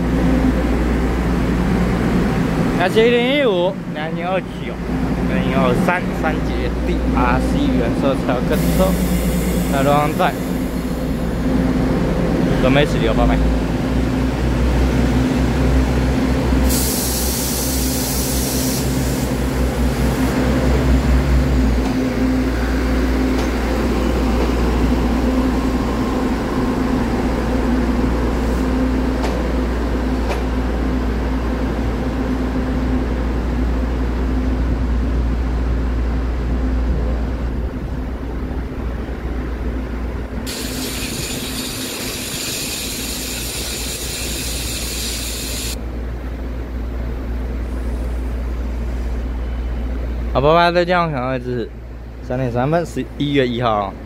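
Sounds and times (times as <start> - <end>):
wheels rumbling on rail: 0.0 - 50.3
hiss: 8.6 - 10.7, 16.6 - 19.4, 40.5 - 45.8.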